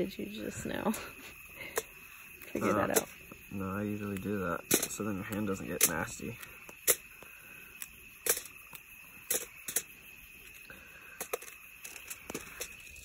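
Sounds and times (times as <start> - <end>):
high drone of insects: 0.0 - 13.0
aluminium foil crinkling: 4.0 - 13.0.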